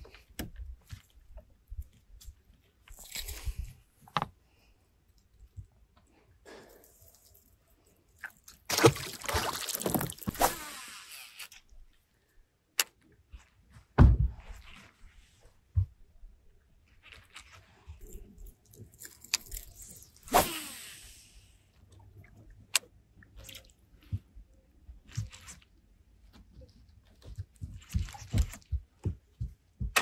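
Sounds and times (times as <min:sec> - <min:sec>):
fish splashing into water: 0:08.7 - 0:10.8
heavy thump: 0:14.0 - 0:14.4
handling knocks and rustles: 0:26.3 - 0:30.0.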